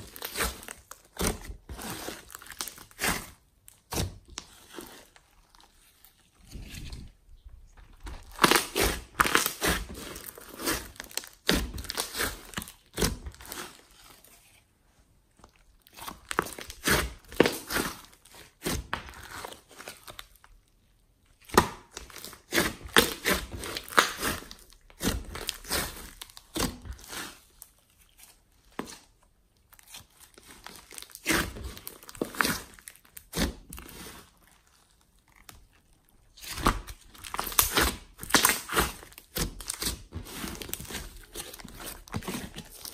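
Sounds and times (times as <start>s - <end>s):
slime crackling and popping: 8.0s - 14.1s, 15.5s - 42.9s.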